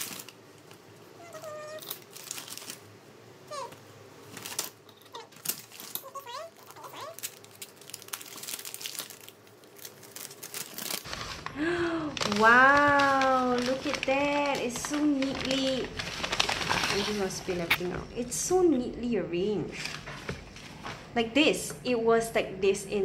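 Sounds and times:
paper bag crinkling: 0.0 - 0.4, 1.5 - 18.0.

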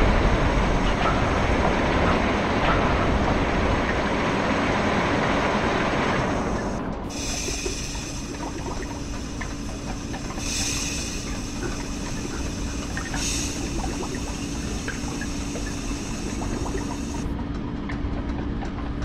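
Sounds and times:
low mechanical rumble and hum: 0.0 - 19.0
steam hisses: 6.1 - 17.3.

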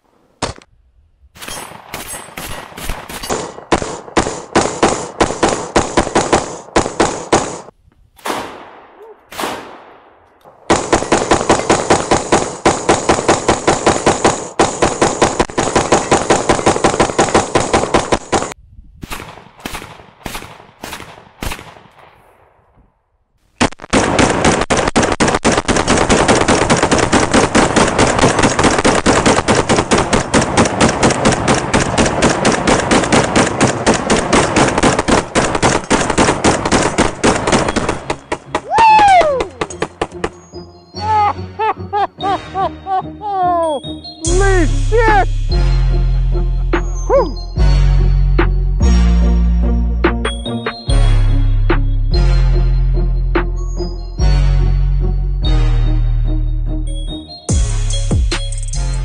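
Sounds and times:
rifles firing rapid shots: 1.4 - 22.2, 23.6 - 40.4.

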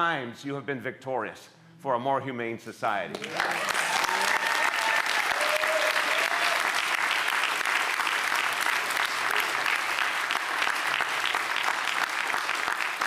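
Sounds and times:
crowd applauding: 3.1 - 13.0.

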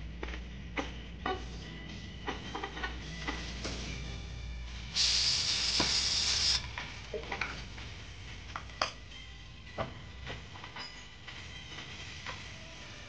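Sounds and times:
loud spray-like hiss: 4.9 - 6.7.

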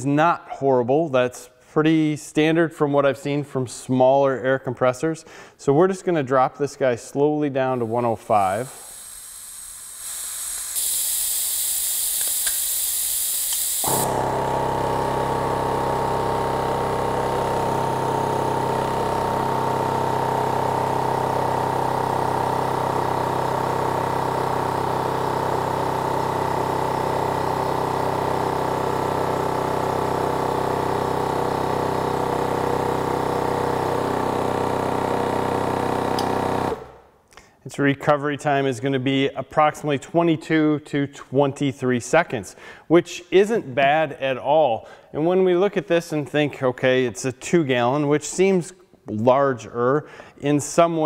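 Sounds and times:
air compressor running: 7.6 - 37.1
air hissing out of tank: 7.8 - 14.4.

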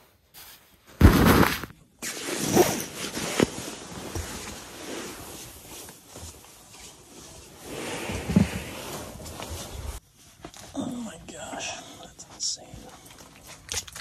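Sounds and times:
nylon fabric rustling: 0.2 - 10.7.

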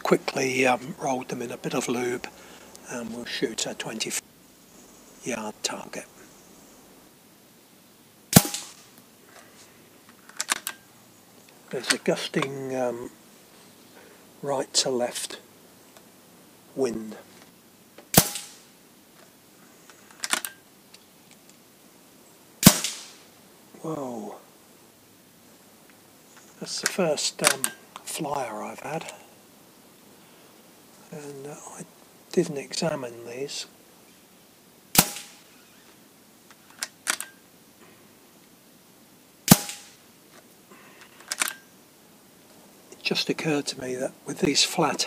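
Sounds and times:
air rifle shot: 8.3 - 8.9, 18.1 - 18.7, 22.6 - 23.3, 34.9 - 35.5, 39.5 - 40.0
air rifle cocking clicks: 10.3 - 10.8, 20.1 - 20.6, 36.5 - 37.4, 41.2 - 41.7
mechanical clicks: 36.7 - 37.4.

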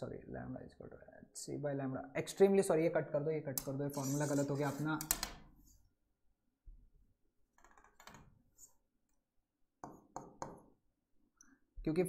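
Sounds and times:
stylus tapping on a display: 9.8 - 10.7.

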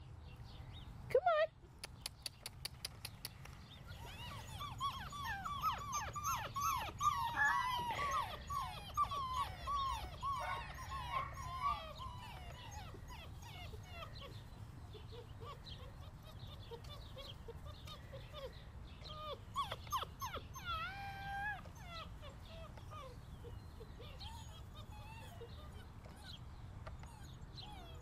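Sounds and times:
puppies whining: 3.8 - 28.0
puppy yips: 4.0 - 14.1, 19.1 - 26.4, 27.0 - 28.0.

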